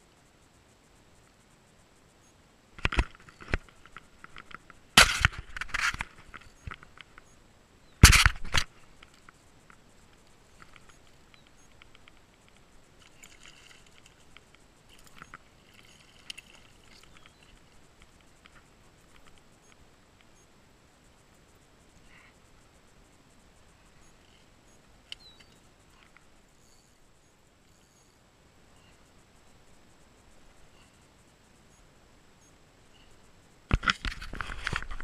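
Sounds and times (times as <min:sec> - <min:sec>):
faint ticks of fishing reel: 0:00.0 - 0:05.0, 0:05.6 - 0:08.0, 0:08.7 - 0:35.0
sharp knock: 0:08.0 - 0:08.6.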